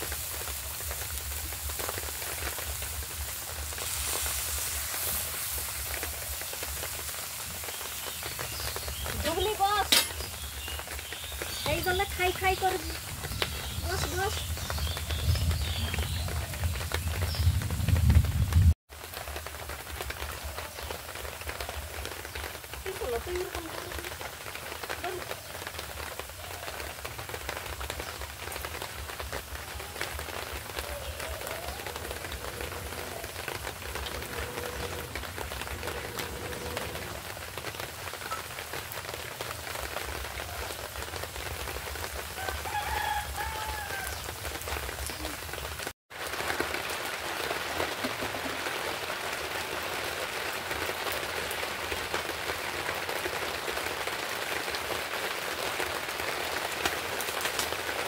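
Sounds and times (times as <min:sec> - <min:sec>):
fish sizzling in oil: 0:00.0 - 0:17.5, 0:18.9 - 0:53.7
faint bird call: 0:29.7 - 0:37.1.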